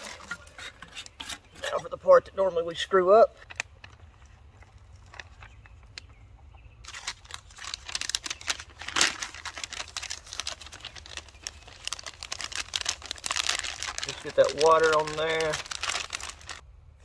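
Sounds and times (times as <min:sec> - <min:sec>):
plastic sleeve crinkling: 0:03.4 - 0:06.1, 0:06.8 - 0:16.6.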